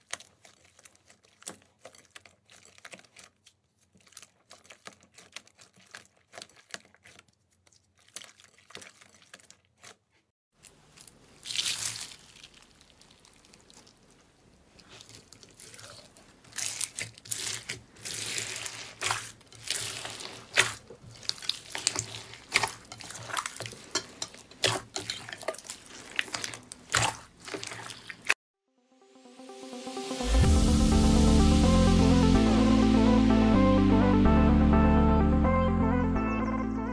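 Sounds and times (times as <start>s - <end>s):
wet slime squelching: 0.0s - 28.4s.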